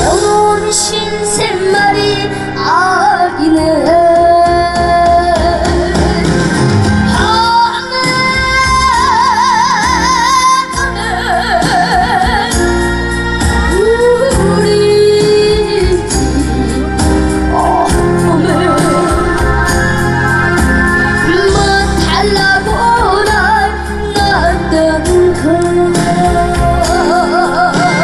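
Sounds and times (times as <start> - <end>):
instrumental accompaniment: 0.0 - 28.0
person singing with vibrato: 7.1 - 28.0.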